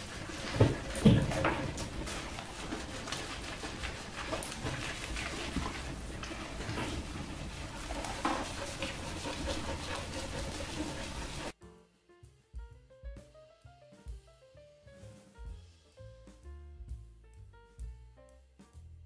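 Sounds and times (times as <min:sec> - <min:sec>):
dog panting: 0:00.0 - 0:11.6
wet rubbing of lather: 0:00.0 - 0:11.6.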